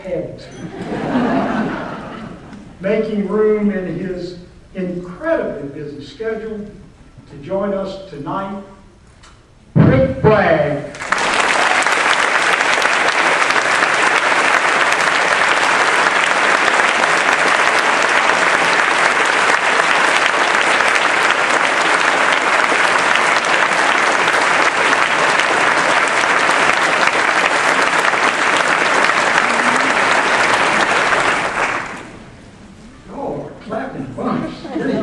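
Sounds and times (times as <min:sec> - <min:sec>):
audience applauding: 0:10.9 - 0:32.4.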